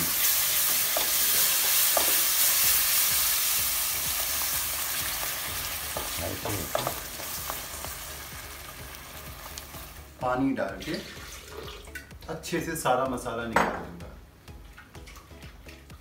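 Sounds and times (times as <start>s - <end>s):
gravy sizzling in a pan: 0.0s - 10.2s.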